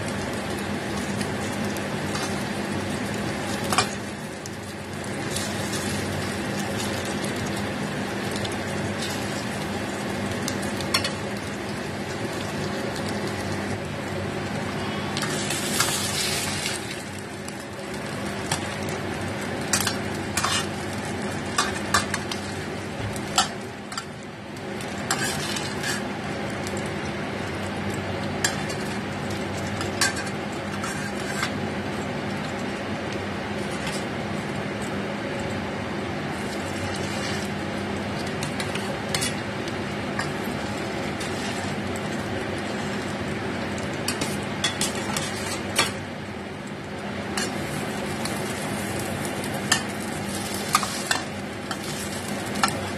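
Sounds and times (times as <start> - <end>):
oil sizzling in a frying pan: 0.0 - 52.9
metal spatula scraping a pan: 25.1 - 26.0, 30.0 - 31.6, 41.2 - 41.8.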